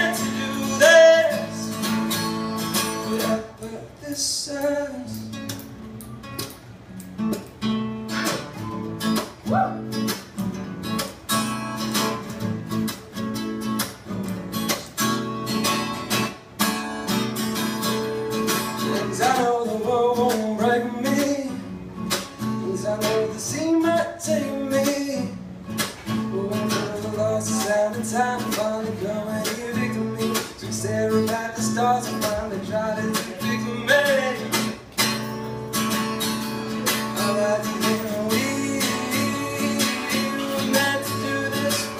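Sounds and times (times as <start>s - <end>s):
man singing: 0.0s - 5.4s, 18.7s - 21.7s, 22.4s - 25.4s, 26.2s - 34.8s, 36.7s - 41.9s
acoustic guitar strumming: 0.0s - 41.9s.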